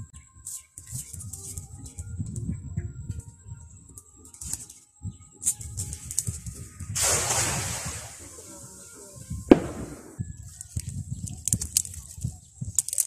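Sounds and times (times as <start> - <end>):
cast net splashing into water: 7.0 - 8.5.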